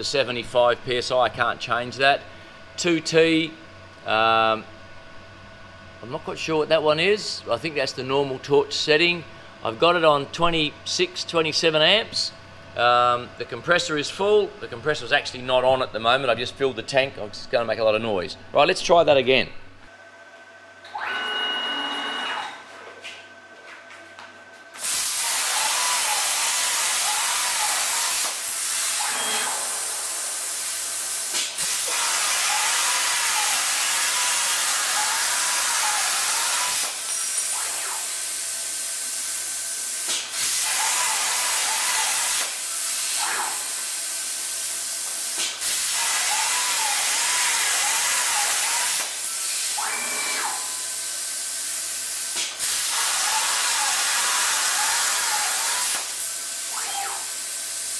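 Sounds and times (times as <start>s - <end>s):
plasma cutter hissing: 24.8s - 57.9s
faint warbling motor whine: 28.9s - 30.4s, 37.4s - 38.5s, 49.7s - 51.0s, 56.6s - 57.5s.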